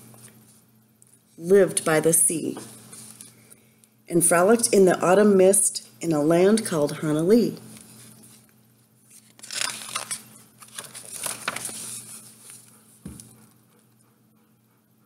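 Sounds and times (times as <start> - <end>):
book page rustling: 7.8 - 13.4.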